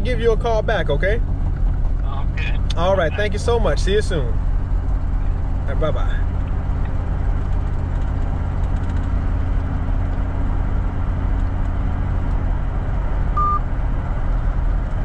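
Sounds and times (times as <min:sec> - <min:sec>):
vehicle engine and road drone: 0:00.0 - 0:15.0
short beep: 0:13.4 - 0:13.7.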